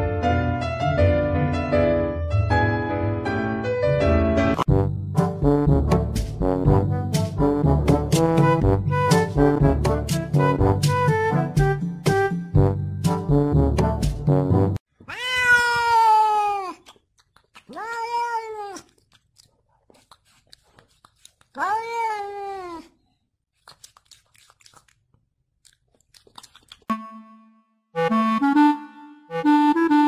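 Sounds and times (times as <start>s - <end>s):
cat meowing: 15.0s - 16.9s, 17.7s - 19.0s, 21.5s - 23.0s.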